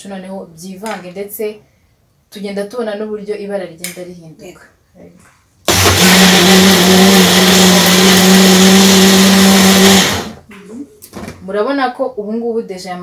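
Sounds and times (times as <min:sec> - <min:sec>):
countertop blender running: 0:05.7 - 0:10.4.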